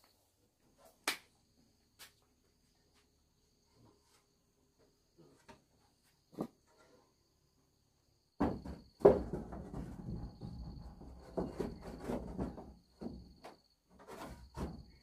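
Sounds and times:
knocks and clattering of materials: 8.4s - 15.0s.

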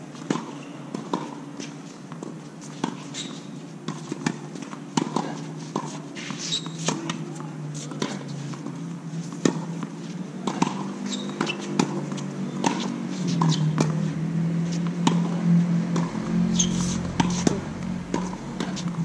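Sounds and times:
steady low hum: 11.7s - 19.0s.

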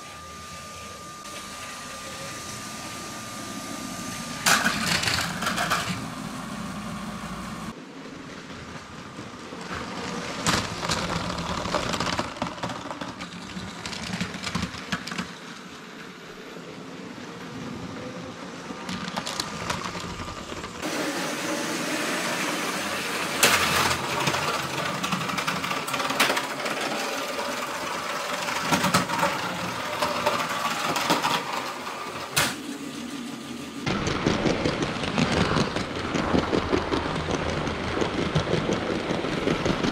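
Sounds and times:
toy train motor running: 0.0s - 7.7s, 18.9s - 39.9s
plastic wheels rattling on track: 4.4s - 6.1s, 8.6s - 15.6s, 18.8s - 20.9s, 23.3s - 32.4s, 33.8s - 39.9s.

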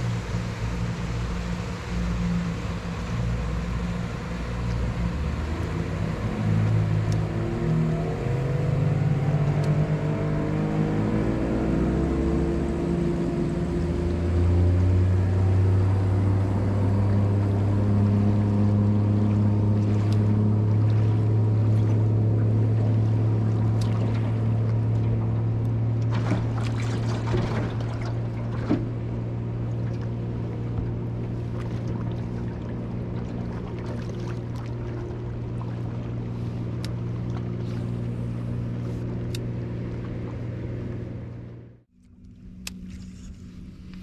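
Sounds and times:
outboard motor droning: 0.0s - 44.0s
wake knocking on hull: 19.2s - 36.2s.

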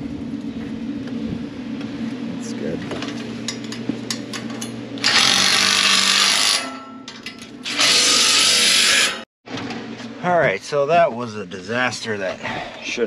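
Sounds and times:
power tool running: 5.0s - 6.7s, 7.6s - 9.2s.

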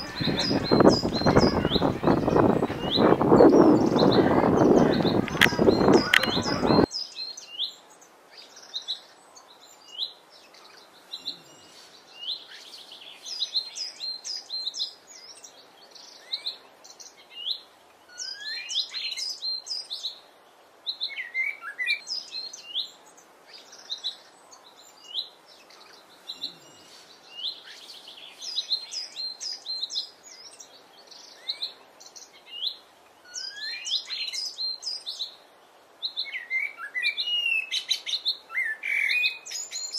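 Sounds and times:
loud rushing noise: 0.0s - 6.9s
blackbird singing: 0.0s - 20.2s, 20.9s - 35.4s, 36.0s - 39.9s.

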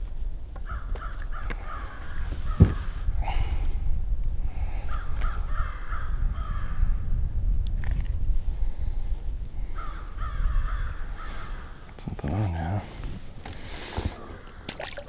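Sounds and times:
crows cawing: 0.6s - 3.0s, 4.8s - 6.9s, 9.7s - 11.8s, 14.2s - 15.0s.

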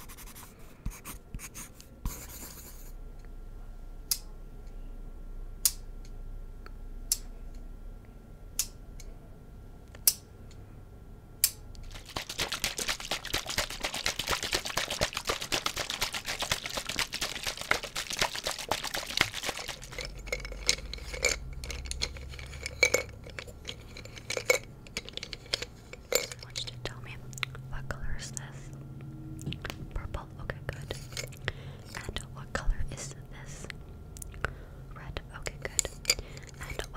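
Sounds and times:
glass jar of granules shaken: 11.8s - 26.8s, 30.8s - 32.0s, 35.8s - 36.9s
pencils tapping glass jar: 11.9s - 27.0s, 30.8s - 32.2s, 35.5s - 36.9s.

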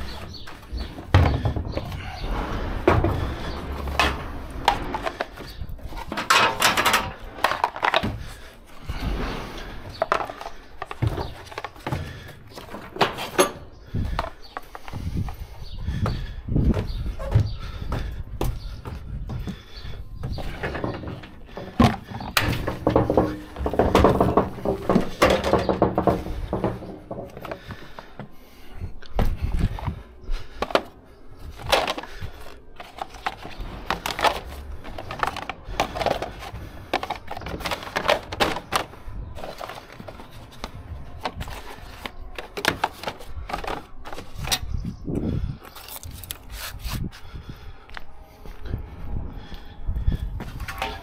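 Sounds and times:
plastic protectors knocking together: 2.9s - 8.5s, 9.9s - 15.1s, 20.4s - 27.8s, 30.5s - 44.6s
metal and wood knocking on metal floor: 20.4s - 27.8s.

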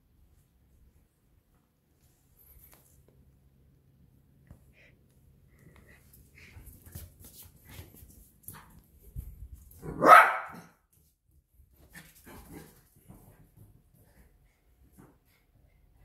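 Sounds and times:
faint clicks and rustles: 0.4s - 3.5s
puppy barking: 9.8s - 10.8s.

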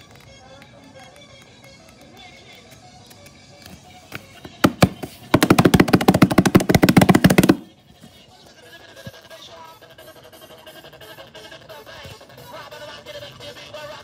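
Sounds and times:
flipbook pages flicking: 4.4s - 7.6s.

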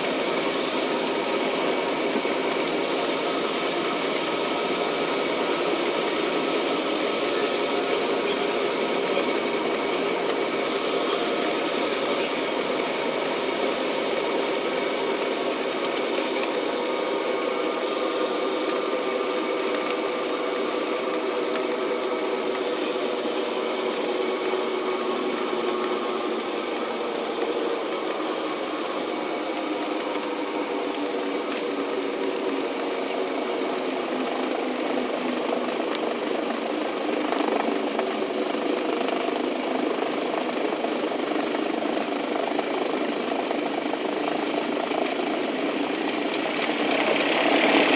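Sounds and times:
twin aircraft engines droning: 0.0s - 47.9s.

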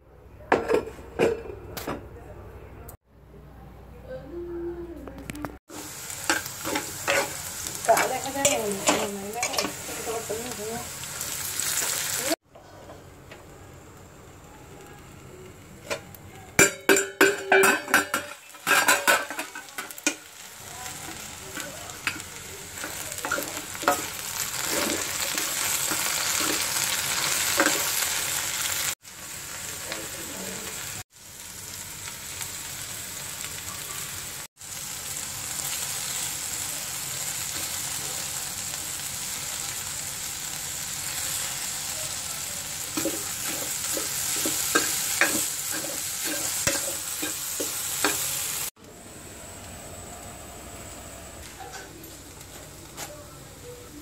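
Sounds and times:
vegetables sizzling in oil: 5.6s - 12.4s, 13.0s - 54.0s
spatula stirring: 21.1s - 27.8s.

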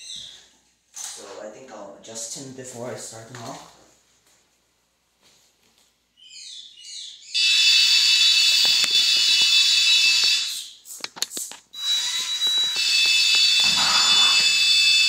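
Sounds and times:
high warning buzzer: 7.4s - 10.8s, 11.8s - 15.0s.

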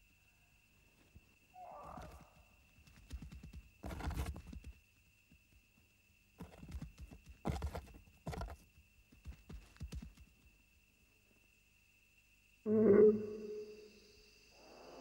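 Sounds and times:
faint steady high tone: 12.6s - 15.0s.

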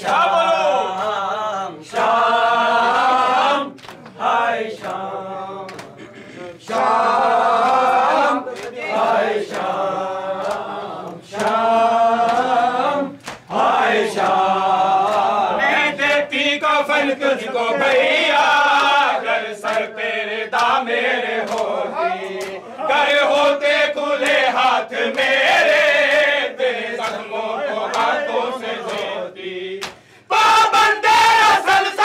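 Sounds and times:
men chanting in unison: 0.0s - 32.0s
hands slapping chests: 3.7s - 4.2s, 5.7s - 6.0s, 10.4s - 11.6s, 13.2s - 13.5s, 19.6s - 19.9s, 21.4s - 22.6s, 28.8s - 29.2s, 29.8s - 30.1s.

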